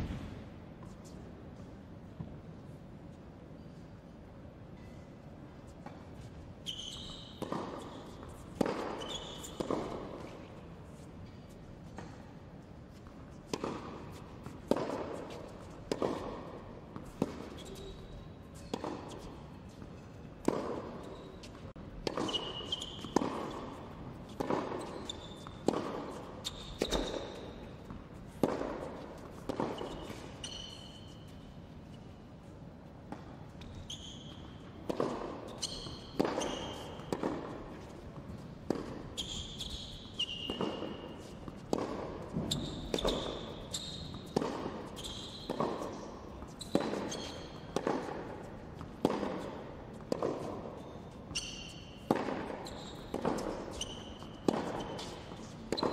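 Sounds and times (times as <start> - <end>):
shoes squeaking on court: 4.8 - 55.9
tennis ball bounces: 7.3 - 31.4, 33.1 - 55.9
tennis racket strikes: 22.0 - 30.4, 34.8 - 50.8, 51.4 - 55.9.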